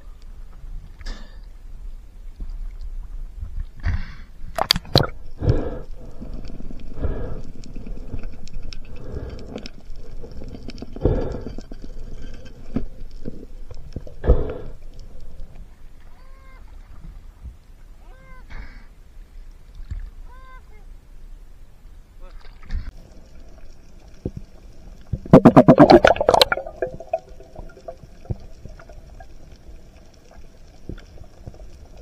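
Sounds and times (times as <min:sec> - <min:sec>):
water sloshing and gurgling: 0:22.4 - 0:32.0.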